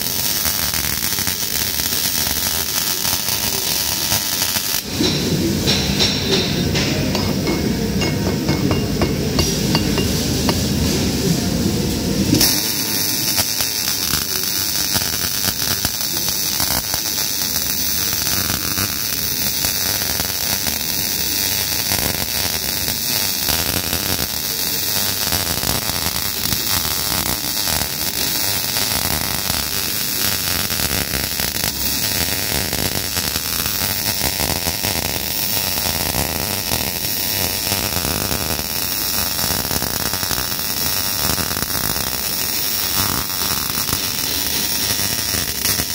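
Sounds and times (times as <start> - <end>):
welding arc crackling: 0.0 - 45.9.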